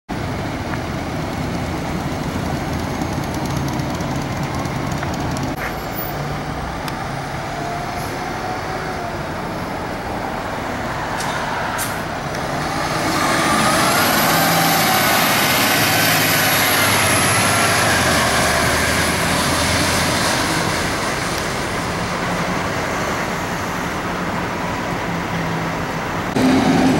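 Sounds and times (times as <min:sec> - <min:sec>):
diesel engine idling: 0:00.1 - 0:26.9
siren rising and falling: 0:12.5 - 0:20.4.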